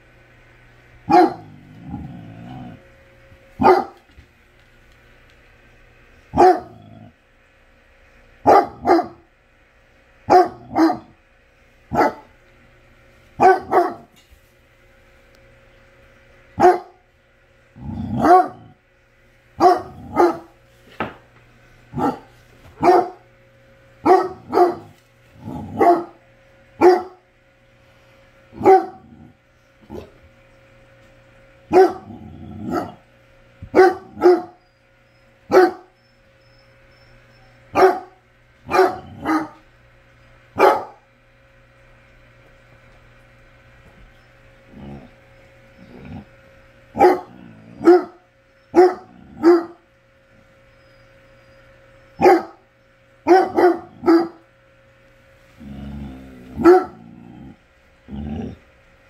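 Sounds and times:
faint steady hum: 0:00.0 - 0:59.0
dog barking: 0:01.1 - 0:01.5, 0:03.6 - 0:04.0, 0:06.3 - 0:06.8, 0:08.4 - 0:09.3, 0:10.3 - 0:11.2, 0:11.9 - 0:12.3, 0:13.4 - 0:14.1, 0:16.6 - 0:17.0, 0:18.1 - 0:18.7, 0:19.6 - 0:20.6, 0:21.9 - 0:23.2, 0:24.0 - 0:24.9, 0:25.7 - 0:26.2, 0:26.8 - 0:27.2, 0:28.6 - 0:29.1, 0:31.7 - 0:33.0, 0:33.7 - 0:34.6, 0:35.5 - 0:36.0, 0:37.7 - 0:39.6, 0:40.6 - 0:41.0, 0:47.0 - 0:49.8, 0:52.2 - 0:52.6, 0:53.2 - 0:54.4, 0:56.6 - 0:57.0.

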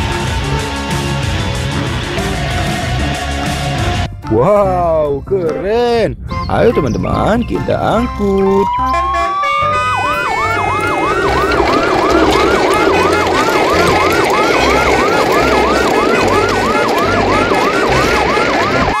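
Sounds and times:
siren wailing and yelping: 0:08.4 - 0:19.0.

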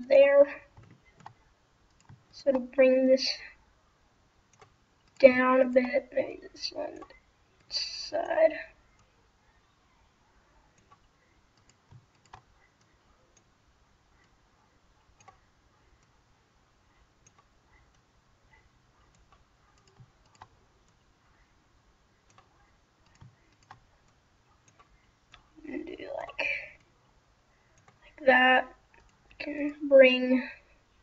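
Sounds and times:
computer mouse and keyboard clicks: 0:00.7 - 0:02.7, 0:04.5 - 0:06.0, 0:07.0 - 0:08.0, 0:10.8 - 0:13.5, 0:17.2 - 0:21.1, 0:22.2 - 0:25.6, 0:27.7 - 0:28.1, 0:28.9 - 0:29.8.

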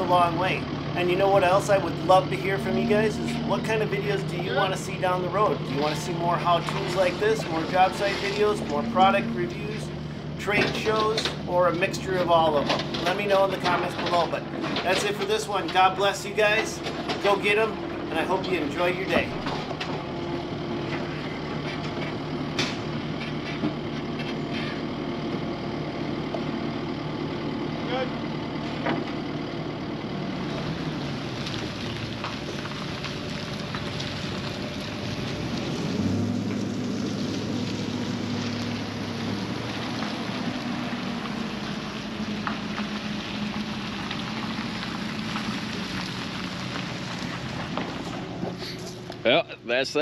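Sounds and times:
diesel engine running: 0:00.0 - 0:50.0
tyres hissing on wet pavement: 0:30.1 - 0:49.2.

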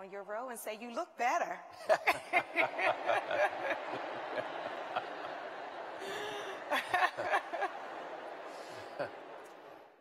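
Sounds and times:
woman laughing: 0:01.8 - 0:04.0, 0:06.0 - 0:07.9
crowd talking and laughing: 0:02.0 - 0:10.0.

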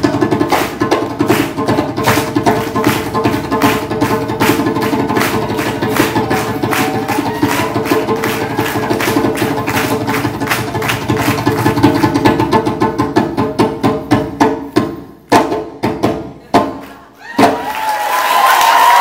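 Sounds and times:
fast djembe drumming: 0:00.0 - 0:17.7
audience cheering and whooping: 0:05.8 - 0:09.4, 0:17.2 - 0:19.0.

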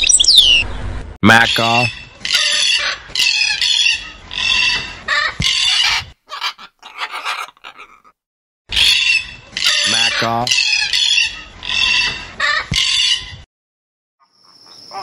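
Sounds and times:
macaws squawking: 0:01.6 - 0:13.4.

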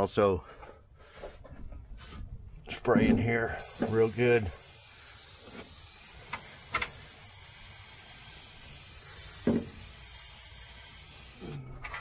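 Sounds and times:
spray can hissing: 0:03.6 - 0:11.6.

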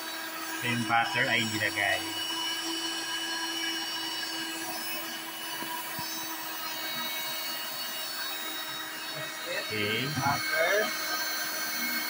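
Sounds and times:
stand mixer motor whine: 0:00.0 - 0:12.0.

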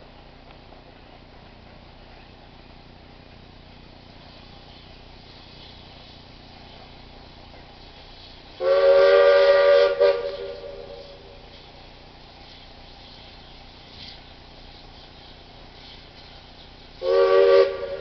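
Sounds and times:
steam locomotive chime whistle: 0:08.6 - 0:11.4, 0:17.0 - 0:18.0.

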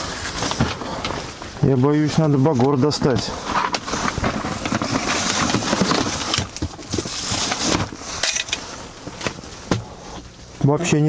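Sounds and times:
gear rattling in plastic box: 0:02.7 - 0:08.6.

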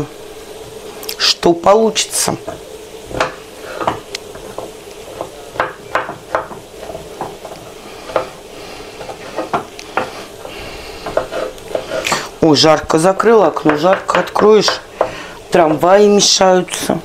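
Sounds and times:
onion sizzling in pan: 0:00.0 - 0:17.0
knife tapping cutting board: 0:02.4 - 0:08.4, 0:09.0 - 0:12.3, 0:13.1 - 0:15.8.

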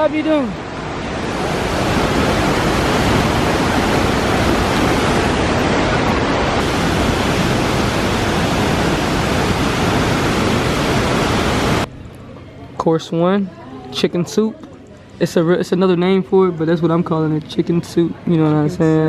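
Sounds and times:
waterfall and rapids rushing: 0:00.0 - 0:11.9.

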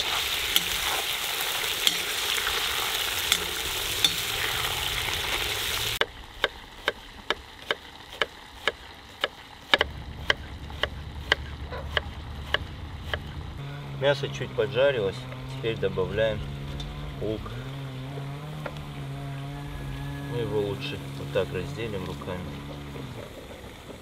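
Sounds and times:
meat sizzling in hot oil: 0:00.0 - 0:09.7
knife chopping on wooden board: 0:07.7 - 0:13.3.

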